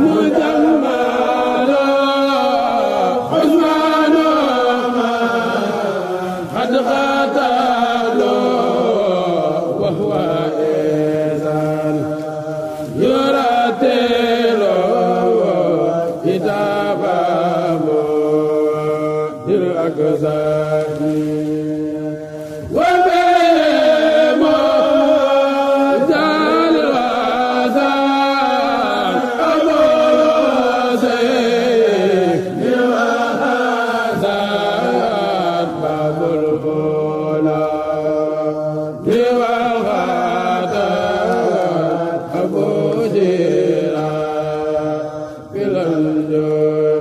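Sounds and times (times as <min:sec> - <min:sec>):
lead voice singing: 0:00.0 - 0:47.0.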